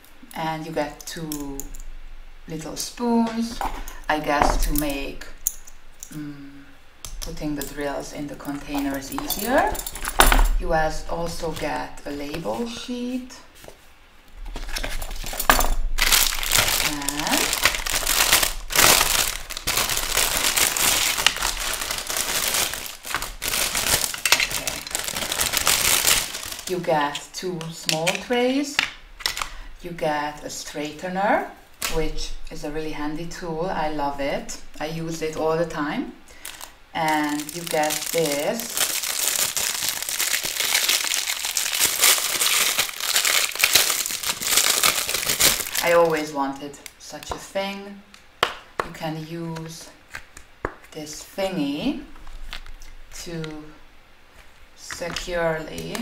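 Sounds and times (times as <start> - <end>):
small tools handled: 8.4 - 10.6, 14.5 - 28.2
plastic bag crinkling: 14.4 - 29.6, 36.3 - 47.3, 52.1 - 53.7, 54.3 - 56.0.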